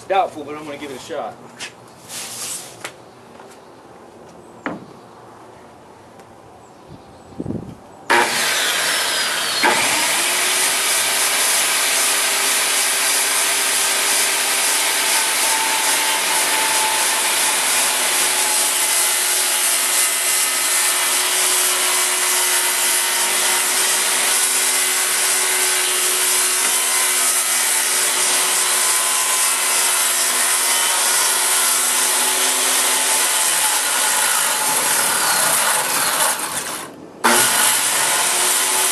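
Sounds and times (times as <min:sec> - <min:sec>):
circular saw cutting plywood: 0:08.1 - 0:38.9.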